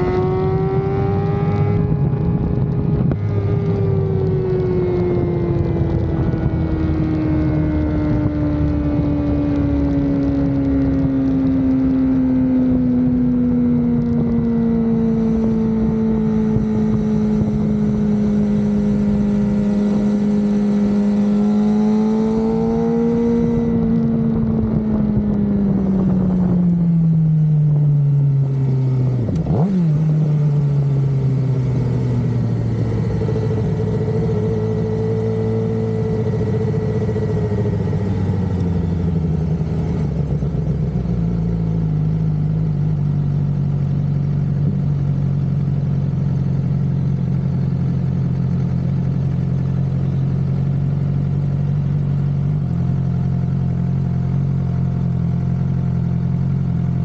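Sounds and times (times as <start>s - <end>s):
motorcycle engine: 0.0s - 57.0s.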